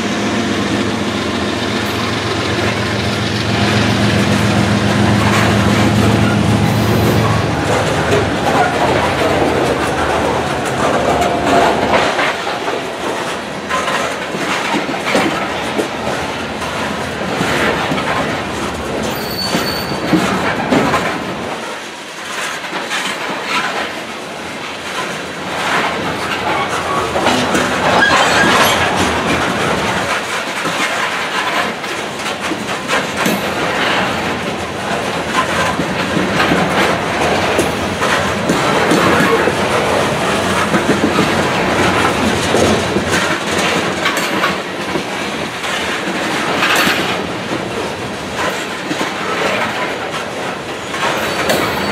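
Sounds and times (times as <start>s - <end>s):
train wheels clacking over rail joints: 0.0s - 51.9s
high wheel squeals: 19.1s - 20.2s.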